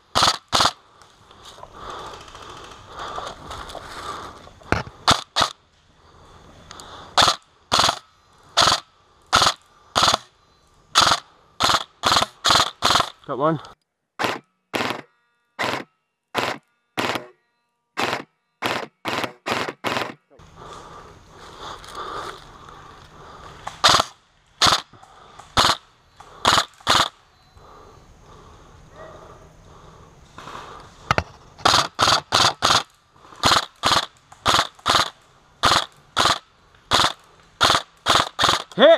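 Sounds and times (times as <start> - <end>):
rustling of movement: 0.0 - 13.7, 20.0 - 38.8
airsoft rifle shots: 0.1 - 0.8, 4.7 - 5.6, 7.2 - 10.3, 10.9 - 13.2, 14.2 - 17.4, 18.0 - 20.3, 23.6 - 24.9, 25.5 - 27.2, 31.6 - 38.9.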